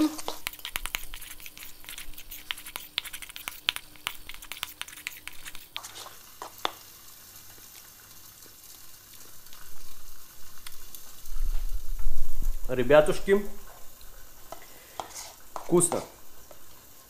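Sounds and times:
fish sizzling in a pan: 0.0 - 17.0
metal spoon scraping bowl: 14.9 - 15.7.

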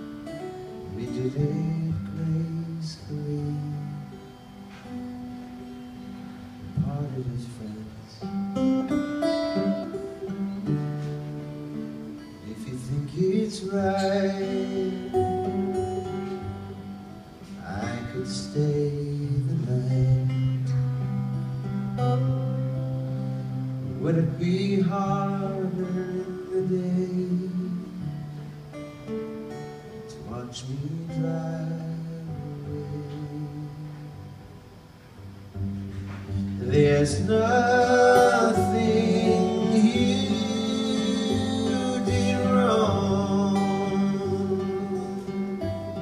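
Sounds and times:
acoustic guitar strumming: 0.0 - 46.0
man singing: 0.9 - 4.3, 6.7 - 8.3, 12.4 - 16.7, 17.5 - 21.2, 23.8 - 28.3, 30.1 - 34.4, 36.4 - 46.0.

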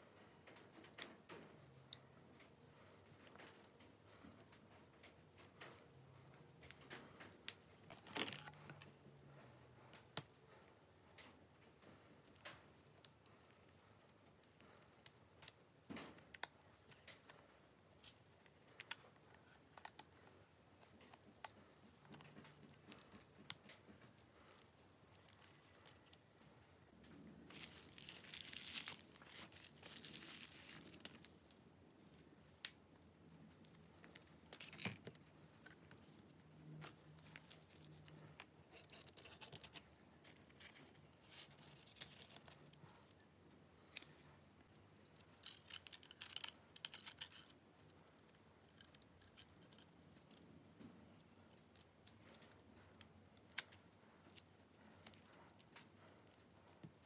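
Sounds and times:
rustling: 0.1 - 32.8
faint high-pitched tone: 41.6 - 52.5.

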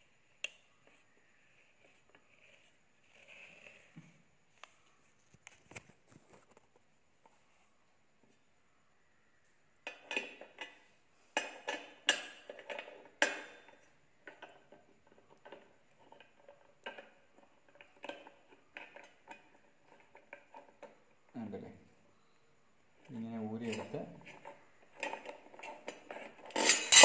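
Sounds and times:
metal blade clanking: 26.5 - 27.0.

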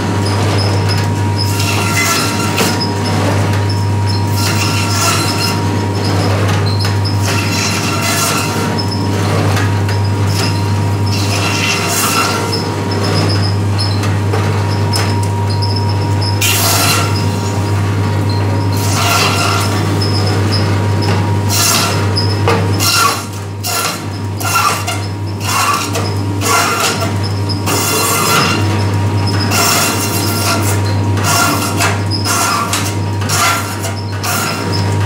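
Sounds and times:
band saw motor hum: 0.0 - 35.0
saw blade grinding through bone: 7.2 - 8.7, 11.1 - 12.6, 18.8 - 19.8, 22.8 - 27.0, 29.5 - 34.7.

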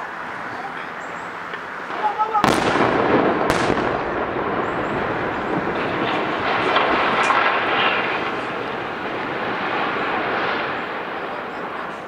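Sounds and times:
rolling rumble of demolition: 1.9 - 12.0
faint cracks: 5.3 - 12.0.

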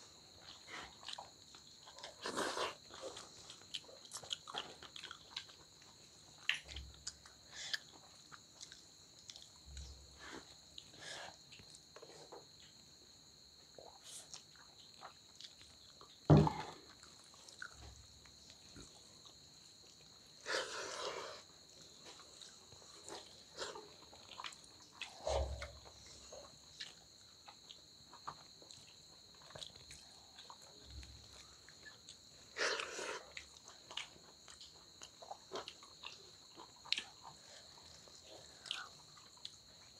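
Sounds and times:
chewing: 0.3 - 12.8, 13.8 - 39.9
loud knock: 16.3 - 16.6.

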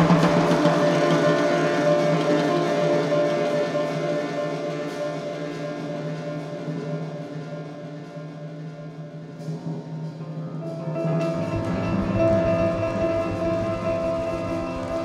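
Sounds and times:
deep pulsing beat: 11.2 - 15.0.

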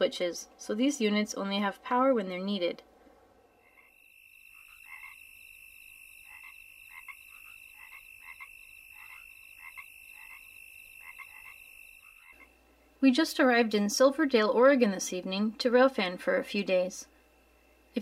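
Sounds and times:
frogs croaking: 3.5 - 12.9.

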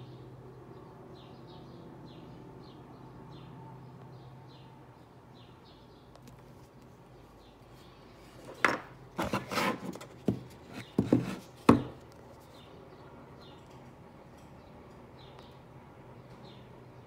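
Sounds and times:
knocks and rubbing on table: 8.5 - 12.0.

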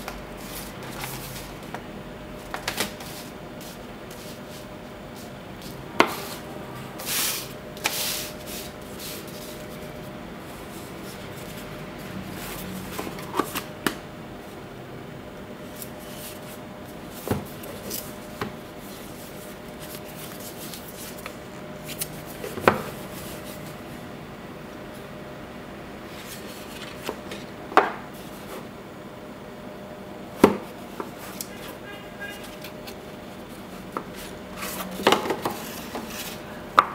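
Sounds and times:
cardboard and paper rustling: 31.0 - 36.5.

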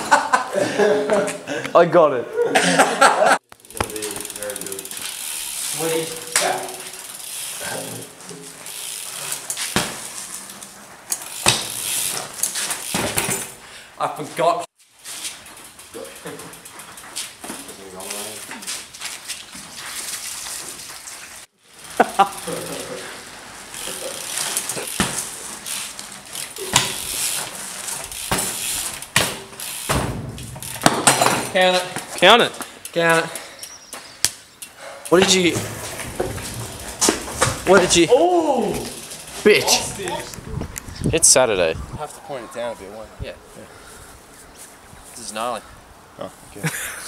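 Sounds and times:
bike hitting concrete: 3.2 - 13.7, 15.0 - 40.8
bike tyres rolling on concrete: 3.3 - 46.6
bike knocks: 3.6 - 4.4, 8.2 - 10.3, 11.2 - 13.6, 23.8 - 32.2, 35.1 - 38.1.

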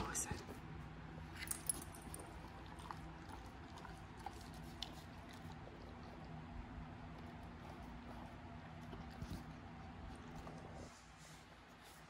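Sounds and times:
dog licking a rug: 0.0 - 12.0
low steady hum: 0.0 - 12.0.

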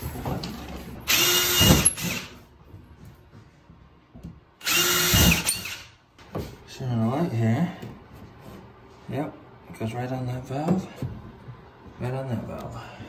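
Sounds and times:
cordless drill boring particleboard: 1.0 - 2.3, 4.6 - 5.9.

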